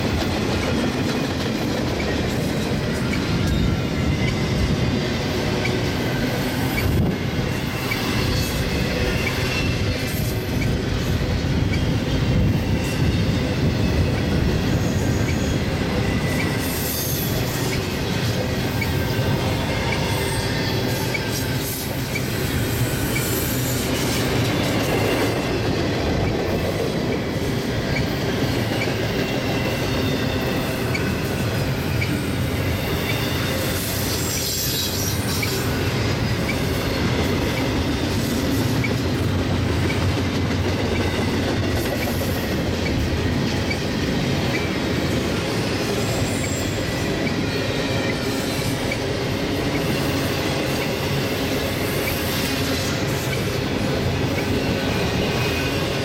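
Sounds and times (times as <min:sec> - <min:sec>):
train wheels rumbling on rails: 0:00.0 - 0:56.0
high wheel squeals: 0:11.7 - 0:25.5, 0:27.9 - 0:38.0.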